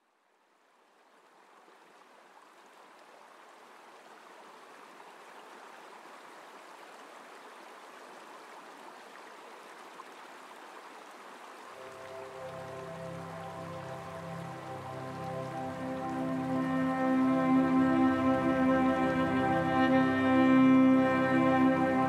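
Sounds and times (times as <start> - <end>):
running water rushing: 0.8 - 22.0
soft music: 11.8 - 22.0.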